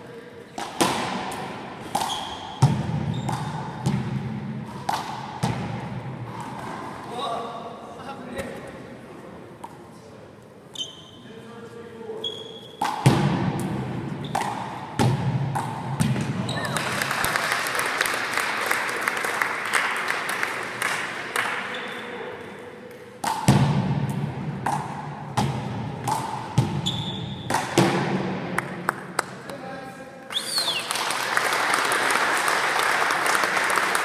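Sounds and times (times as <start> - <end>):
shoes squeaking on gym floor: 2.0 - 3.7, 10.7 - 11.5, 12.1 - 12.8, 16.4 - 16.8, 26.8 - 27.5
ball slapping hands and wall: 23.2 - 26.8, 27.5 - 29.4.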